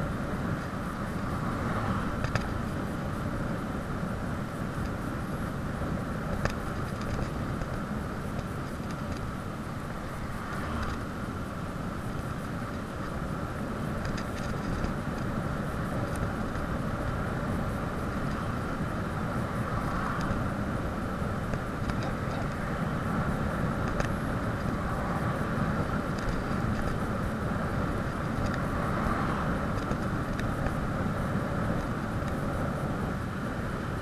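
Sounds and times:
bicycle rumble: 0:00.0 - 0:34.0
wind rush: 0:00.0 - 0:34.0.

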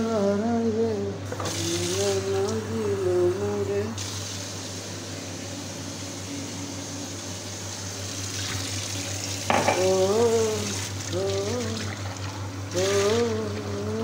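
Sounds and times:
tap running into metal sink: 0:09.5 - 0:10.0
man humming: 0:09.7 - 0:12.1, 0:12.7 - 0:14.0.

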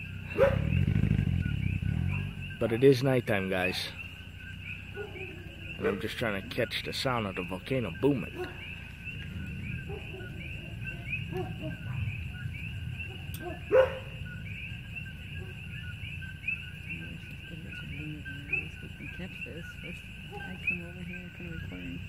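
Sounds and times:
distant dogs barking: 0:00.0 - 0:22.0
frogs chirping: 0:00.0 - 0:22.0.

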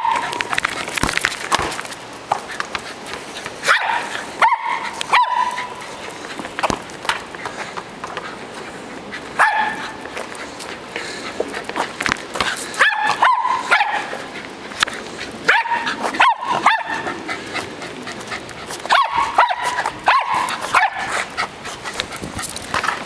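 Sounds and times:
small dog yapping: 0:00.0 - 0:00.5, 0:03.6 - 0:05.8, 0:09.4 - 0:10.0, 0:12.8 - 0:14.2, 0:15.5 - 0:17.1, 0:18.8 - 0:21.2.

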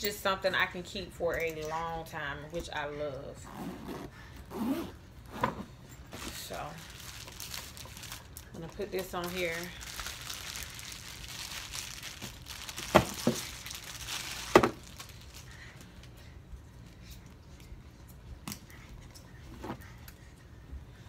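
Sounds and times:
plastic wrapping crinkling: 0:06.2 - 0:15.9.

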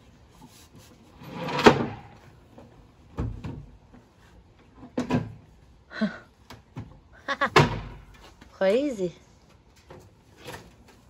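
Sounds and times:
wooden cabinet scraping on truck bed: 0:01.1 - 0:02.3
cabinet banging down: 0:07.5 - 0:08.0.

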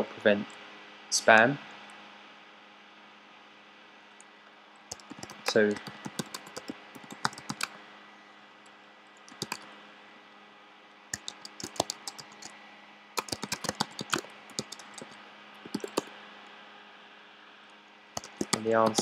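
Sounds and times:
faint steady hum: 0:00.0 - 0:19.0
computer keyboard typing: 0:04.9 - 0:07.8, 0:09.3 - 0:09.7, 0:11.2 - 0:12.5, 0:13.2 - 0:16.1, 0:18.2 - 0:19.0.

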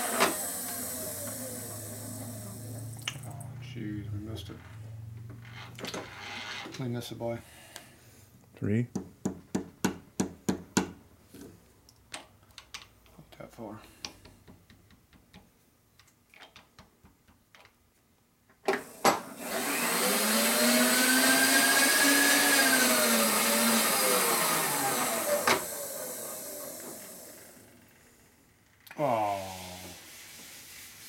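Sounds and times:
shop vacuum running: 0:00.0 - 0:05.4, 0:18.7 - 0:28.1.

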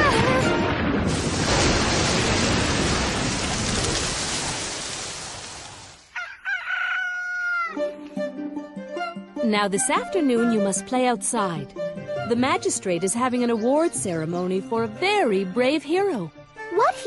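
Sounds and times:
storm wind blowing: 0:00.0 - 0:05.9
rooster crowing: 0:06.1 - 0:07.9.

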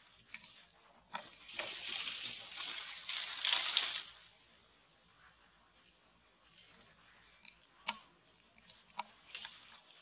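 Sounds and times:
rustling in dry grass: 0:01.2 - 0:04.6.

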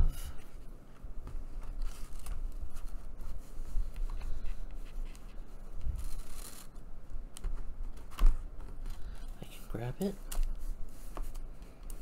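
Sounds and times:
paper rustling and scratching: 0:01.3 - 0:06.8.

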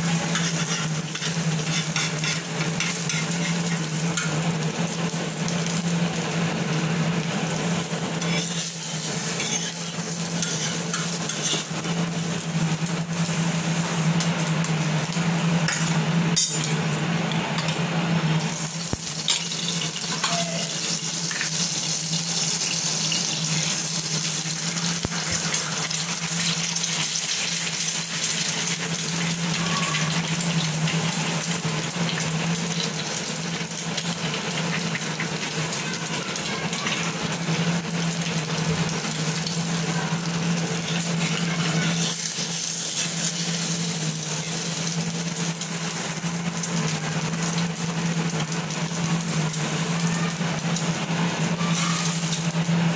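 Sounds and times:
eggs sizzling in hot oil: 0:00.0 - 0:52.9.

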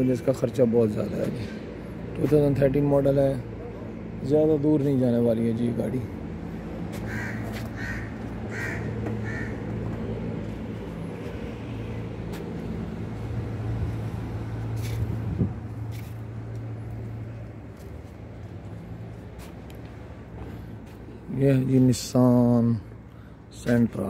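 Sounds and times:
crow cawing: 0:06.9 - 0:09.9.

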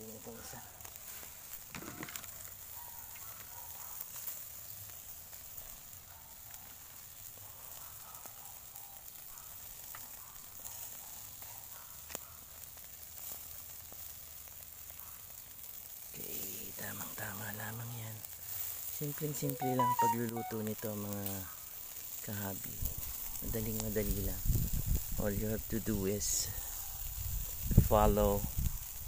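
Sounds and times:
chicken sizzling on charcoal grill: 0:00.0 - 0:29.0
small crackles: 0:00.0 - 0:29.0.

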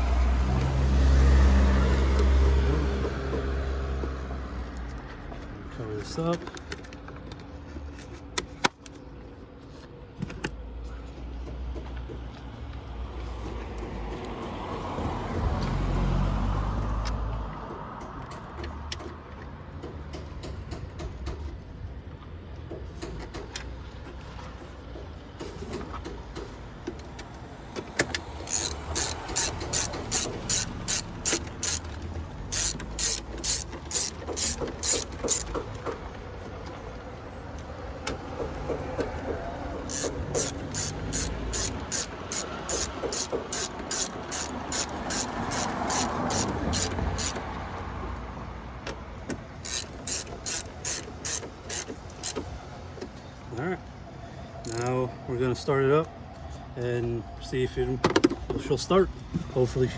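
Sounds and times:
socket ratchet clicking: 0:28.0 - 0:35.7, 0:39.8 - 0:47.4, 0:49.6 - 0:52.5, 0:54.7 - 0:54.9.

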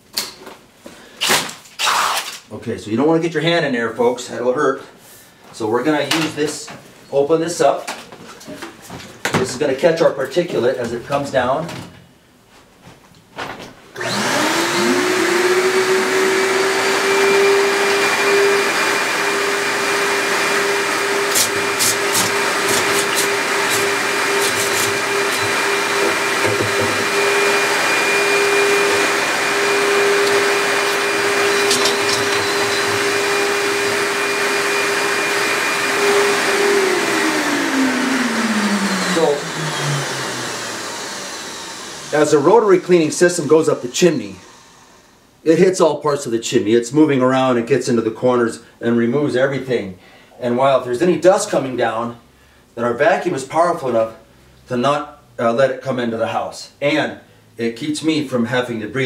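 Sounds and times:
shop vacuum running: 0:14.0 - 0:45.2.

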